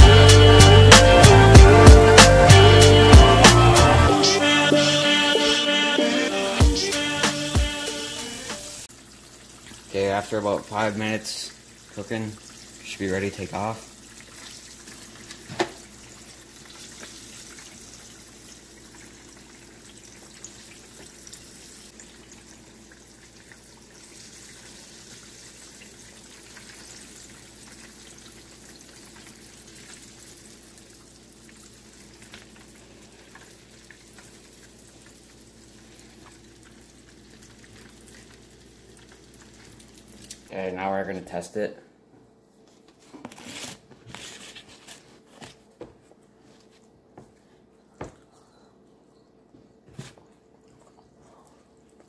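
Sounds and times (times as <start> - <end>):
fish sizzling in hot oil: 7.8 - 40.4.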